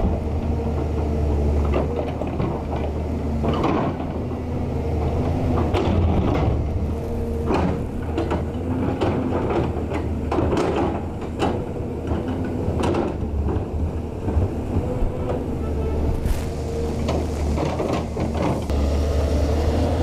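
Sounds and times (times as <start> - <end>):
excavator diesel engine humming: 0.0 - 20.0
bucket scraping and knocking soil: 15.9 - 18.7.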